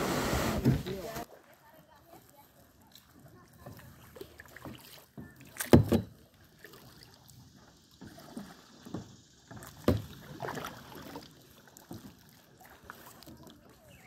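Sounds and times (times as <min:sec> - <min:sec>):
thumps and knocks on boat: 0:05.2 - 0:06.2, 0:08.9 - 0:10.2.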